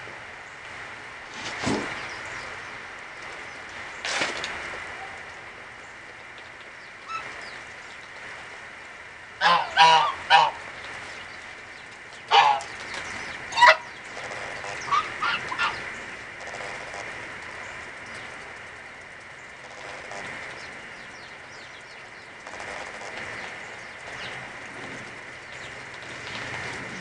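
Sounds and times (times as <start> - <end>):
geese honking: 9.4 - 10.8, 12.3 - 12.8, 13.4 - 17.0.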